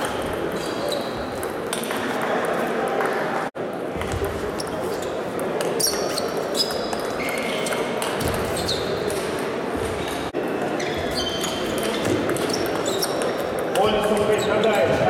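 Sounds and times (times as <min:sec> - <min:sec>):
murmur of sports hall: 0:00.0 - 0:15.0
table tennis balls ticking: 0:11.3 - 0:14.7.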